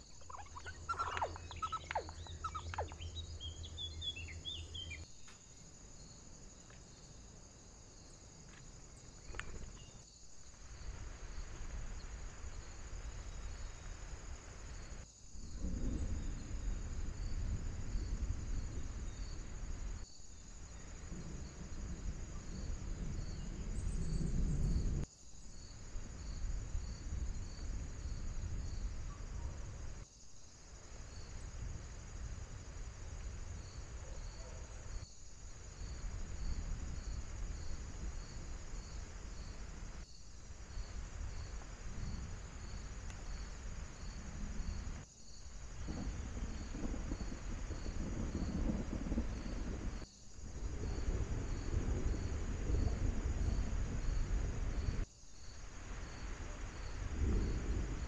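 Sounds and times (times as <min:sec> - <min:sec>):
steady low rumble: 0:45.6 - 0:55.0.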